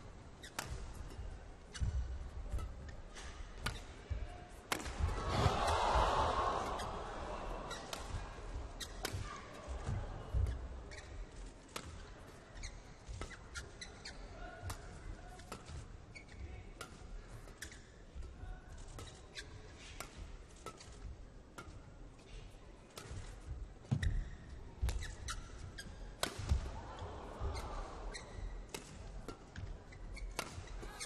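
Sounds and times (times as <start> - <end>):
shoes squeaking on court: 0.4 - 4.1, 7.7 - 14.3, 15.4 - 16.5, 23.0 - 26.5, 27.4 - 31.0
rackets hitting shuttlecock: 0.4 - 5.8, 6.6 - 10.6, 24.8 - 26.8, 27.5 - 31.0
crowd noise: 0.9 - 13.3, 26.2 - 30.9.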